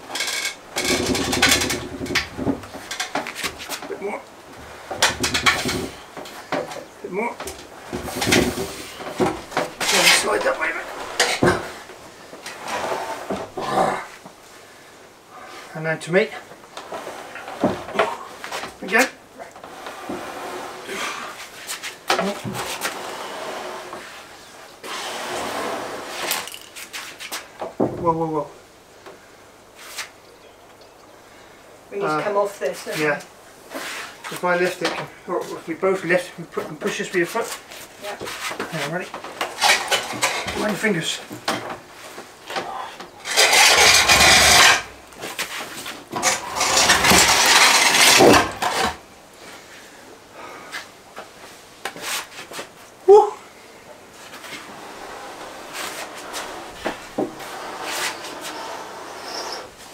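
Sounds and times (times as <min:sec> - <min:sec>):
stone slab scraping over wood: 0:19.7 - 0:21.4, 0:43.2 - 0:45.4, 0:46.1 - 0:49.0, 0:54.5 - 0:59.7.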